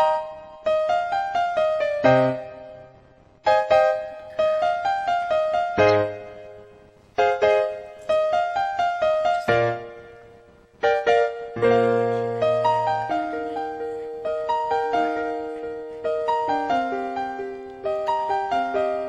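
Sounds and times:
solo piano pop melody: 0.0s - 19.0s.

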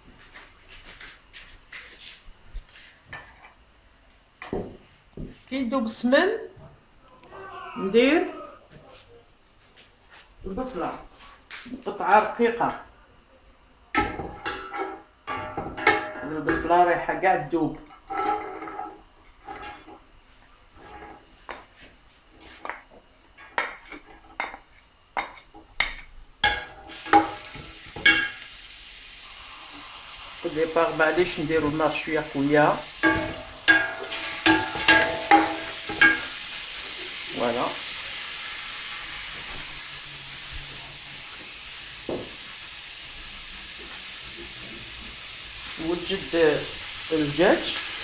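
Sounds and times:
onions sizzling in pot: 13.7s - 48.0s.

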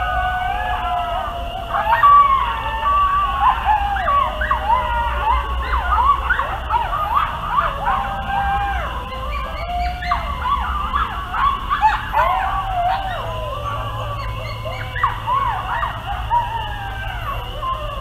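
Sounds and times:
coyotes howling and yipping: 0.0s - 18.0s.

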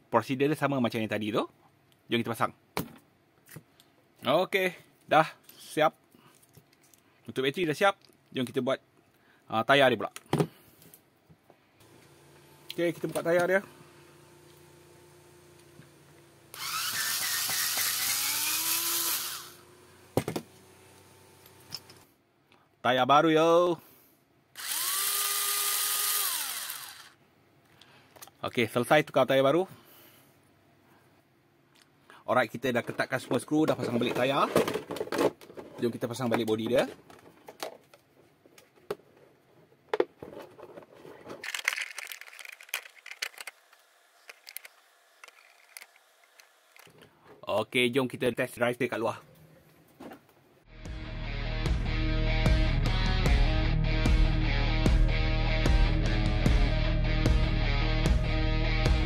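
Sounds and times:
electric drill spinning: 11.8s - 22.0s, 24.6s - 27.2s
plastic clicks and crinkling: 39.9s - 47.1s
plastic rustling: 40.2s - 46.0s.

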